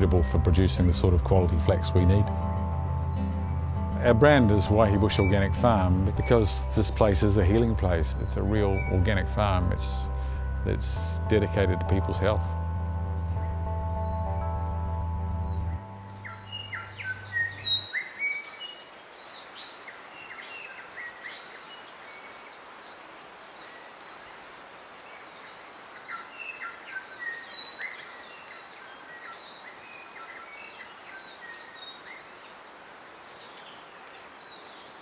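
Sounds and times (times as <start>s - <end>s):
bush ambience hiss: 0.0s - 13.4s
background music: 0.0s - 17.8s
birds chirping and whistling: 0.0s - 32.2s.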